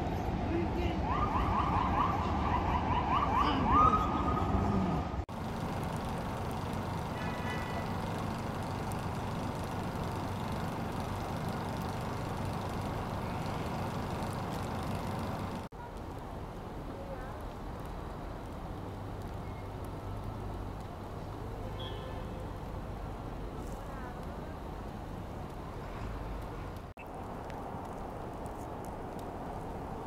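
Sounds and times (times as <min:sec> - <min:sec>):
siren yelping: 0:01.1 - 0:04.5
street noise hiss: 0:05.1 - 0:30.0.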